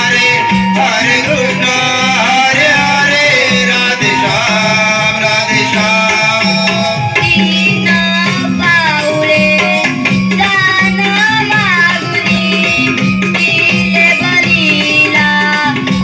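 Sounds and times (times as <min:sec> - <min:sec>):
steady drum beat: 0:00.0 - 0:16.0
child singing: 0:07.2 - 0:16.0.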